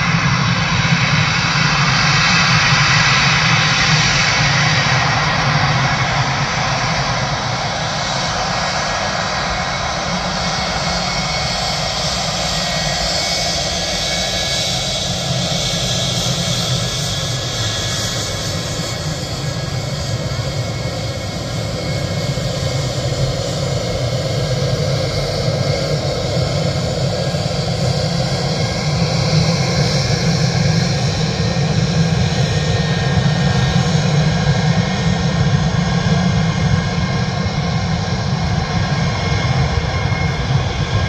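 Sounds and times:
light aircraft engine droning: 0:00.0 - 0:41.0.

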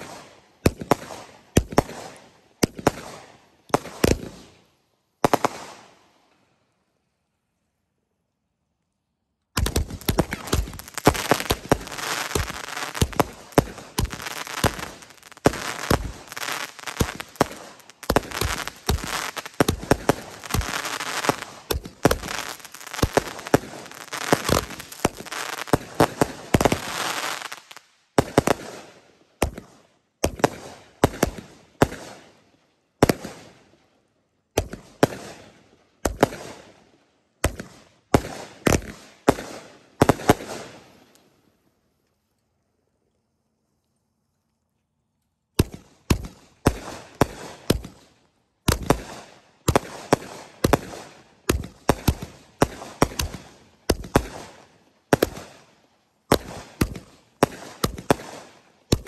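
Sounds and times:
fireworks crackling and popping: 0:00.0 - 0:04.6, 0:05.2 - 0:06.0, 0:09.5 - 0:32.3, 0:37.5 - 0:41.3, 0:45.5 - 0:59.0
firework bangs: 0:09.6 - 0:29.6.

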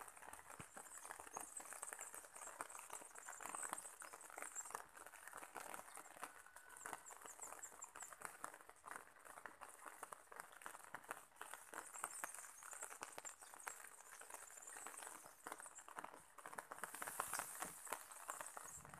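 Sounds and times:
soft tapping and crackling: 0:00.0 - 0:18.9
high thin chirps: 0:16.9 - 0:18.9.

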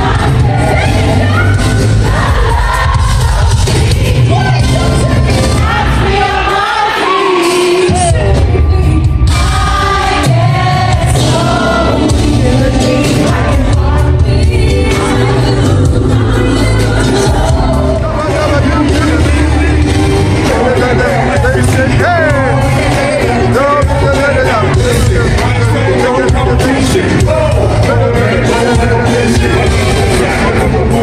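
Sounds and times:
female vocal trio singing: 0:00.0 - 0:18.0, 0:18.7 - 0:24.1
band with heavy bass: 0:00.0 - 0:31.0.

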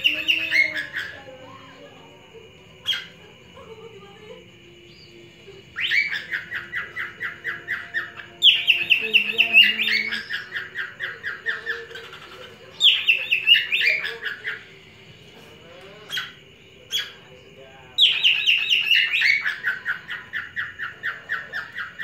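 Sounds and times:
cockatiel chirping: 0:05.8 - 0:14.6, 0:18.0 - 0:22.0.

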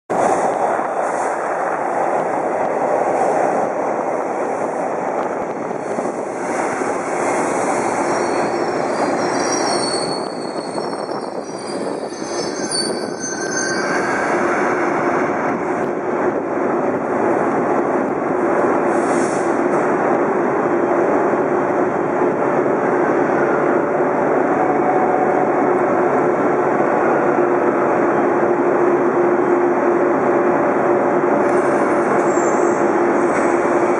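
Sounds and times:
subway train rolling on track: 0:00.1 - 0:33.9
train hum: 0:00.1 - 0:33.9
high wheel squeal: 0:08.0 - 0:15.0.

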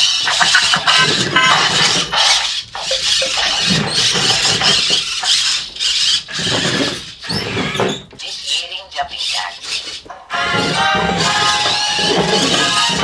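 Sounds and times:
electronic dance sounds from speaker: 0:00.0 - 0:04.8
robot servo motors: 0:00.0 - 0:13.0.

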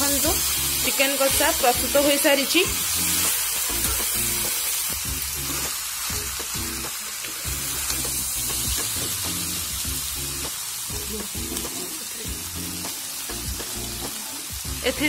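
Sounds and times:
background music: 0:00.0 - 0:15.0
chicken sizzling in a pan: 0:00.0 - 0:15.0.

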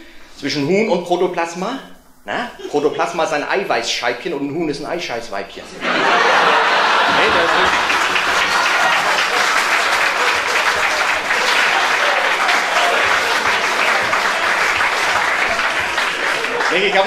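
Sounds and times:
audience applauding: 0:05.8 - 0:17.0.

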